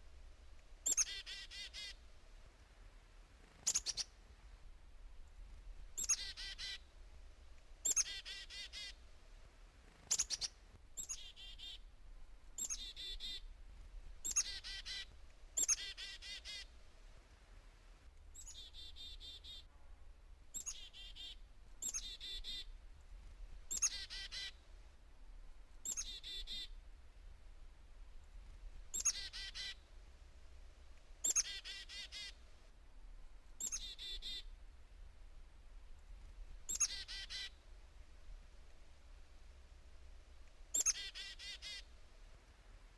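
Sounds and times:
chickadee calls: 0.8 - 2.0, 3.5 - 4.2, 5.9 - 6.9, 7.8 - 9.0, 10.0 - 11.9, 12.6 - 13.5, 14.2 - 16.7, 18.4 - 19.7, 20.6 - 22.8, 23.7 - 24.6, 25.8 - 26.8, 28.9 - 29.8, 31.2 - 32.4, 33.6 - 34.6, 36.6 - 37.6, 40.7 - 41.9.

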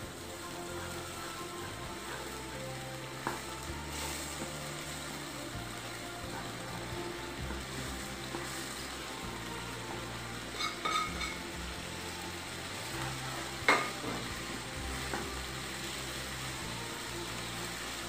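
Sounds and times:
water bubbling and sizzling: 0.0 - 18.0
spoon scraping pan: 10.5 - 11.6.

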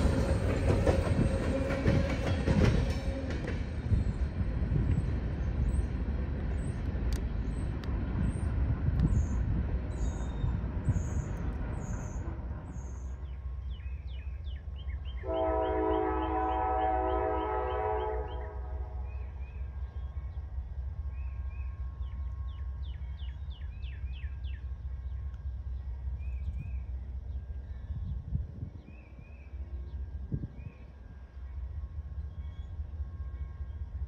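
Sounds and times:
freight train rumbling: 0.0 - 34.0
locomotive horn blast: 15.2 - 19.2.

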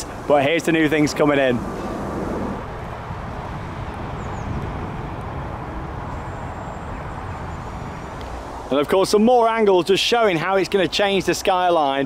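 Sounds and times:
outdoor background rumble: 0.0 - 8.7.

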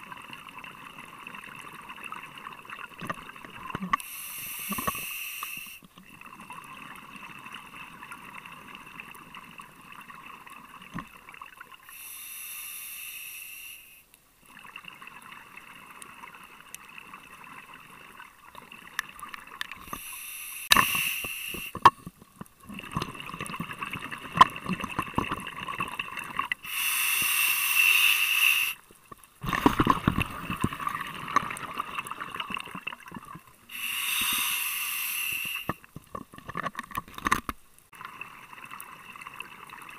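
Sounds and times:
hissing regulator inhale: 4.0 - 5.8, 11.9 - 14.1, 19.8 - 21.8, 26.6 - 28.8, 33.7 - 35.9.

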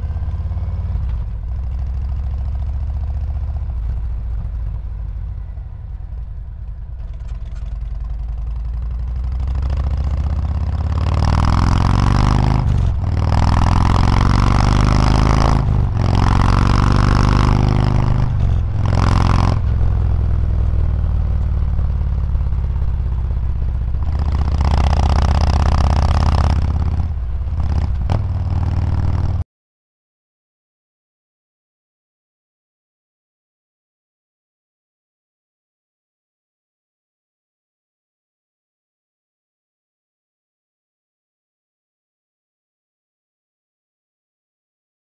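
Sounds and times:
motorcycle accelerating: 0.0 - 29.4.

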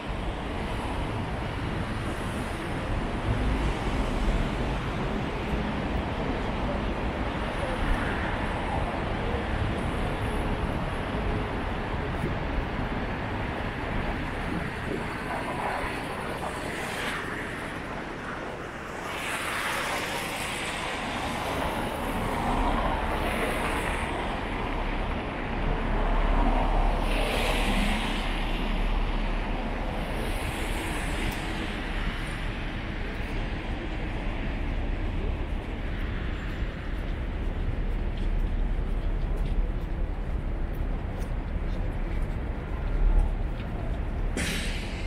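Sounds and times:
low traffic rumble: 0.0 - 45.0
vehicles passing: 0.0 - 45.0.

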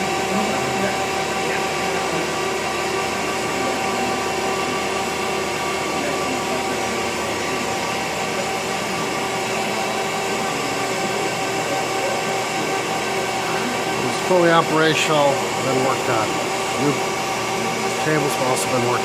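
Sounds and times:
boring mill whirring and humming: 0.0 - 19.0.

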